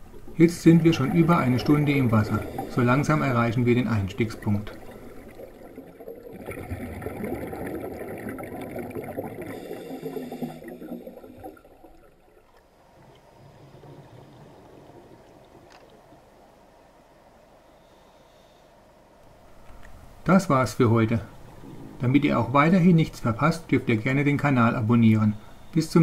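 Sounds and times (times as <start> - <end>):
faint hiss: 0.0 - 6.0, 9.3 - 26.0
underwater gurgling and bubbling: 0.0 - 16.2.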